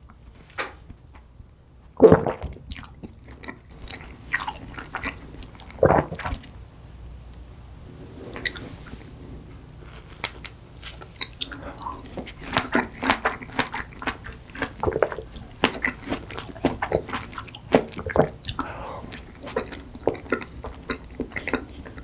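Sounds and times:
wet chewing and biting: 0:02.2 - 0:06.5, 0:10.1 - 0:22.0.

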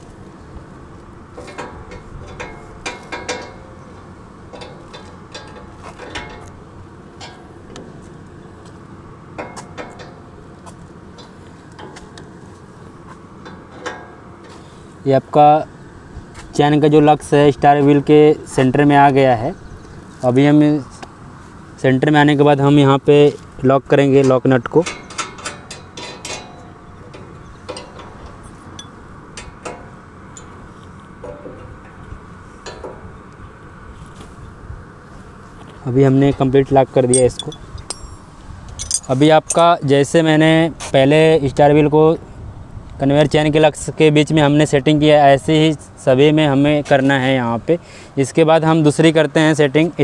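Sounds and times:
spanners clinking on metal nut: 0:24.8 - 0:30.6, 0:37.1 - 0:39.8
wrench clicking on metal: 0:38.8 - 0:39.7.

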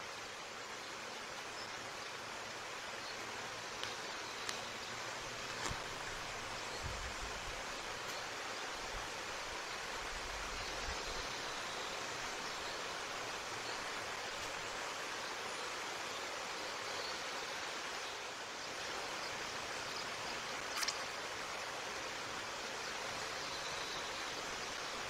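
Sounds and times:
outdoor background hiss: 0:00.0 - 0:25.0.

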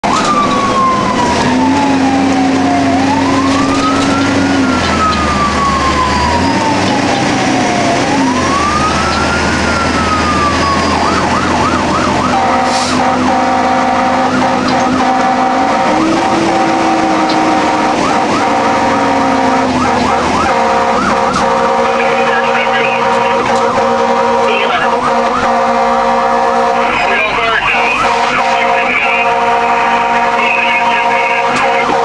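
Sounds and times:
fire engine siren wailing and yelping: 0:00.0 - 0:32.0
blaring horn tone: 0:08.1 - 0:32.0
low horn blasts: 0:10.1 - 0:32.0.

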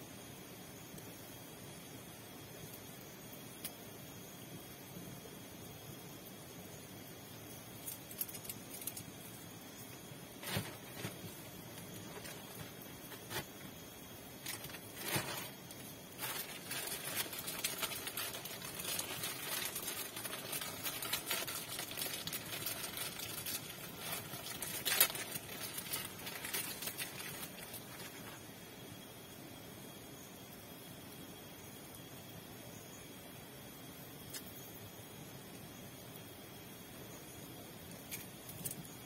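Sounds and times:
plastic wrapper crinkling: 0:10.4 - 0:13.6, 0:16.2 - 0:28.4.

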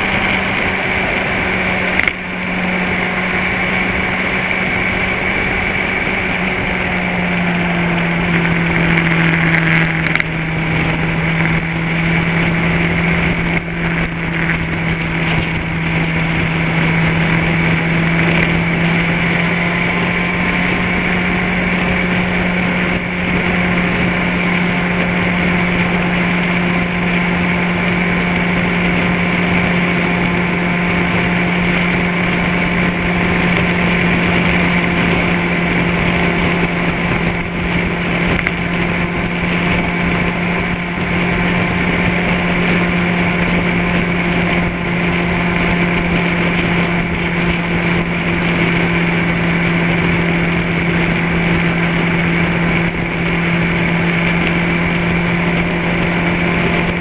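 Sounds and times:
steady rushing noise: 0:00.0 - 0:57.0
vehicle engine hum: 0:00.0 - 0:57.0.

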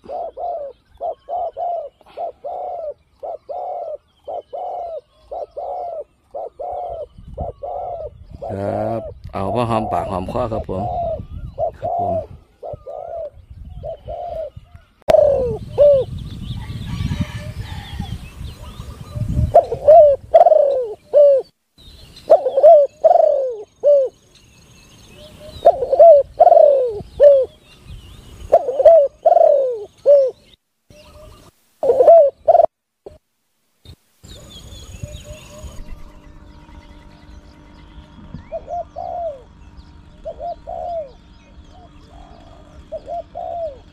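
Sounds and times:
dove cooing: 0:00.0 - 0:21.5, 0:22.2 - 0:24.2, 0:25.0 - 0:27.6, 0:28.4 - 0:33.2, 0:34.6 - 0:43.9.

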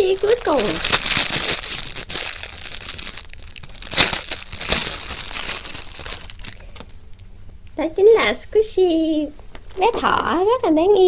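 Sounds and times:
plastic packaging crinkling: 0:00.0 - 0:07.0.

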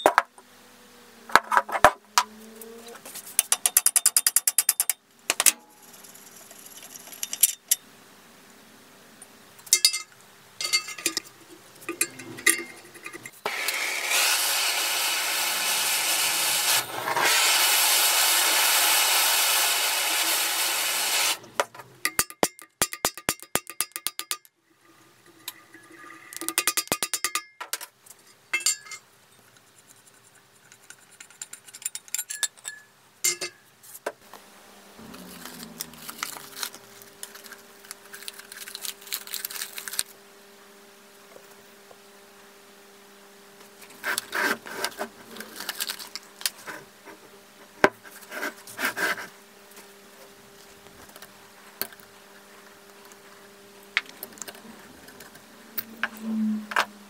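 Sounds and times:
metal knocks and clinks: 0:09.7 - 0:13.4.

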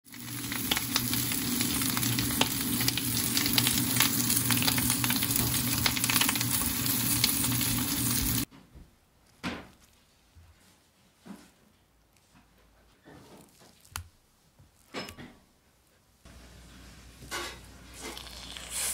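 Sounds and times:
fish sizzling in hot oil: 0:00.0 - 0:08.5, 0:17.3 - 0:18.9.

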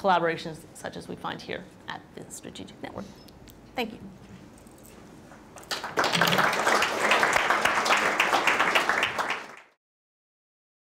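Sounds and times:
audience applauding: 0:05.6 - 0:09.8.

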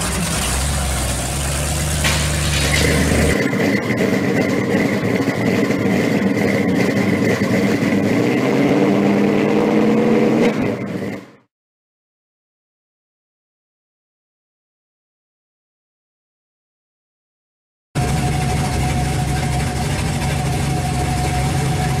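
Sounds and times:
steady engine with high whine: 0:00.0 - 0:11.5, 0:18.0 - 0:22.0.

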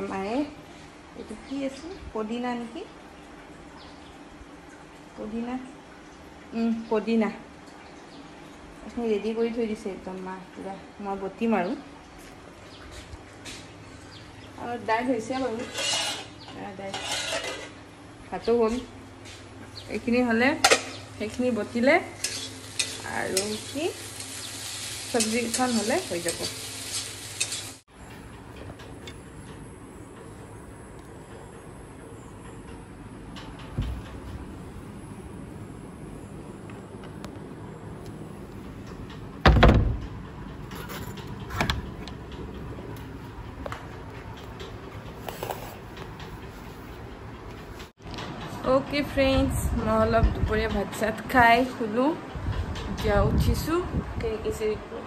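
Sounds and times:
low background hum: 0:00.0 - 0:55.0
food sizzling in a pan: 0:21.7 - 0:27.9
heavy thump: 0:39.4 - 0:40.1.

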